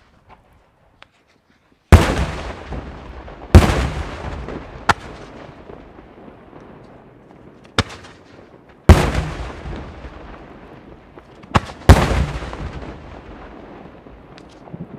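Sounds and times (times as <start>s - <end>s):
sharp firework cracks: 1.9s - 6.0s, 6.6s - 13.6s.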